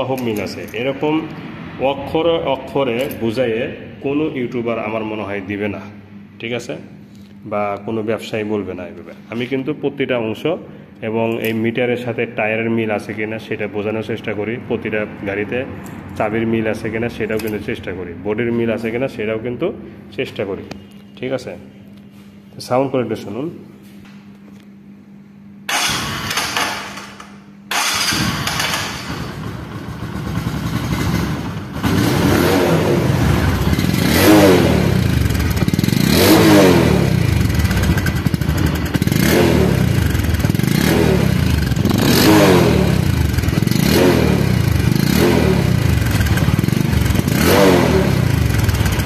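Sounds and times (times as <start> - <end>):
motorcycle electric starter: 25.7 - 32.4, 35.0 - 40.8, 48.2 - 49.0
motorcycle engine revving: 27.7 - 49.0
motorcycle engine idling: 27.8 - 32.4, 33.0 - 49.0.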